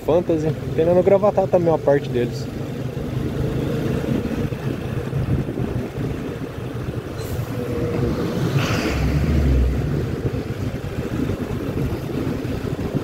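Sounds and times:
vehicle engine hum: 0:00.0 - 0:13.0
wind buffeting microphone: 0:03.9 - 0:13.0
bus passing with tyre hiss: 0:06.9 - 0:12.5.

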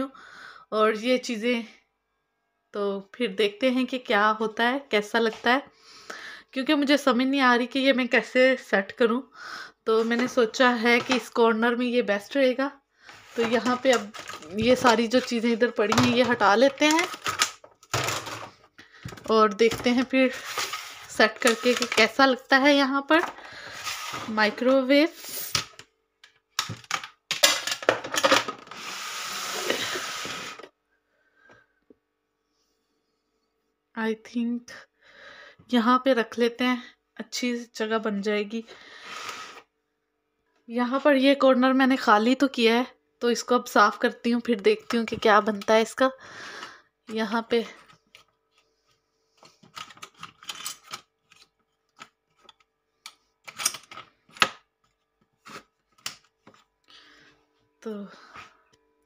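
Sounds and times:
objects handled on kitchen counter: 0:10.0 - 0:11.4, 0:13.1 - 0:22.4, 0:26.5 - 0:30.7
objects scraping on counter: 0:13.0 - 0:15.3, 0:19.7 - 0:22.1, 0:23.2 - 0:24.6, 0:28.2 - 0:30.7, 0:38.9 - 0:39.7.

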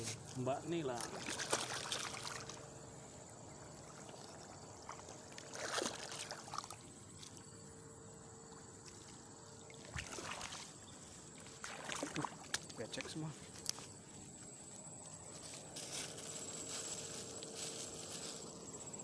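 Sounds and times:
footsteps on dirt: 0:12.5 - 0:18.6
rustles: 0:13.3 - 0:19.0.

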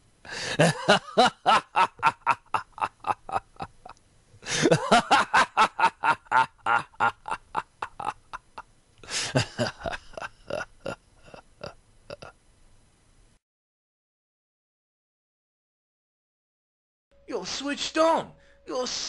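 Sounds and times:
person laughing: 0:00.3 - 0:12.3.

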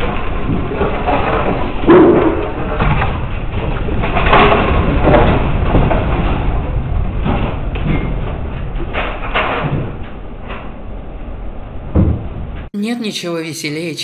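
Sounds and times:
low earthquake rumble: 0:00.0 - 0:12.7.

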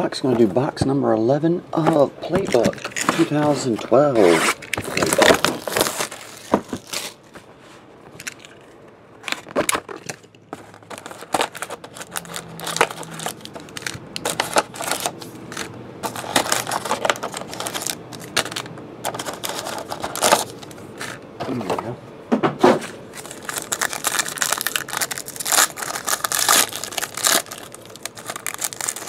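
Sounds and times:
wrappers rustling and crinkling: 0:02.3 - 0:07.4, 0:09.3 - 0:21.2, 0:23.1 - 0:29.0.

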